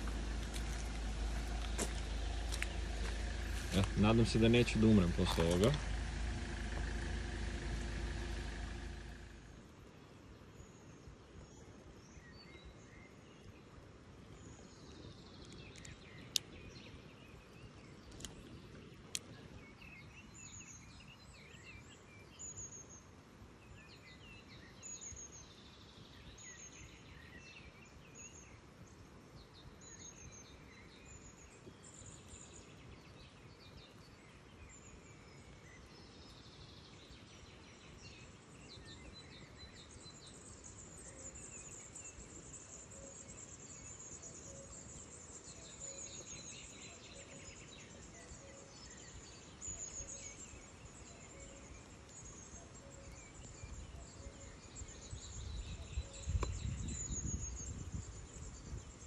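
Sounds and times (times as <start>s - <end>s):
birds chirping and singing: 0.0s - 9.4s, 32.0s - 59.0s
light rain hiss: 0.0s - 11.2s.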